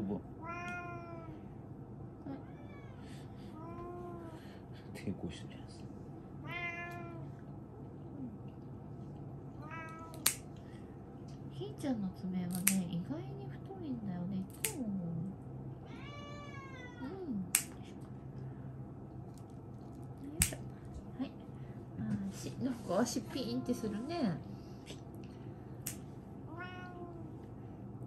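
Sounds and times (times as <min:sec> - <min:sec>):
cat meowing: 0:00.4 - 0:01.4, 0:02.3 - 0:04.3, 0:06.4 - 0:07.3, 0:09.6 - 0:10.2, 0:15.8 - 0:17.2, 0:26.5 - 0:27.4
nail clippers snipping claws: 0:10.1 - 0:10.4, 0:12.5 - 0:12.9, 0:14.5 - 0:14.8, 0:17.5 - 0:17.8, 0:20.4 - 0:20.6.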